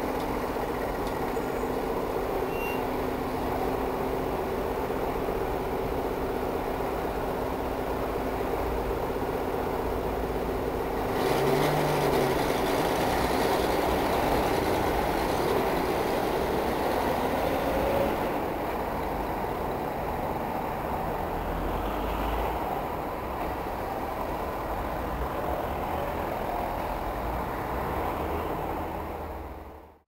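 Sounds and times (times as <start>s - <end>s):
vehicle mechanical rumble: 0.0s - 21.3s.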